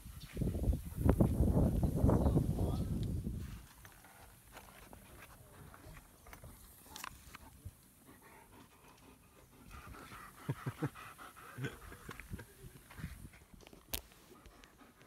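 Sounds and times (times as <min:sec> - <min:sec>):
dog panting: 0:03.8 - 0:13.6, 0:14.3 - 0:15.0.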